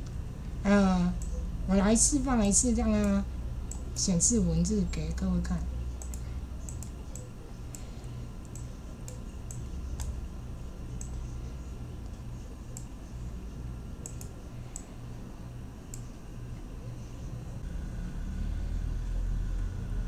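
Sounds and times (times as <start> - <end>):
low steady hum: 0.0 - 20.0
computer mouse clicking: 6.0 - 10.2, 10.9 - 11.3, 12.0 - 13.0, 14.0 - 14.9, 15.9 - 16.1.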